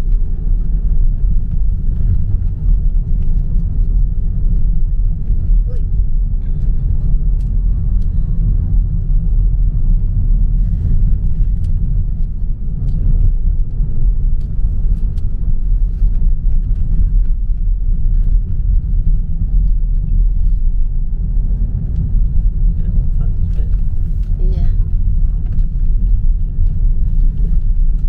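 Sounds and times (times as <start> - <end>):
car cabin road rumble: 0.0 - 28.0.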